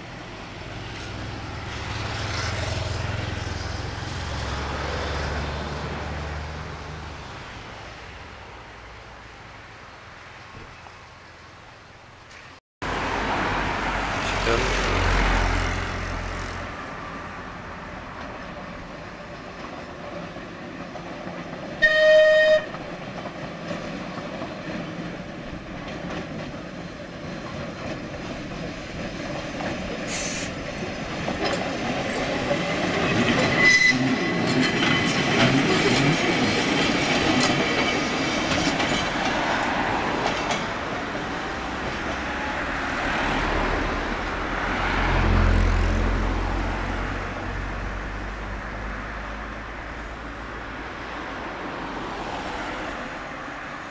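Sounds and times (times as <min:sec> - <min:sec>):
tram running on rails: 0:00.0 - 0:53.9
tram horn blast: 0:21.8 - 0:22.9, 0:32.9 - 0:37.0.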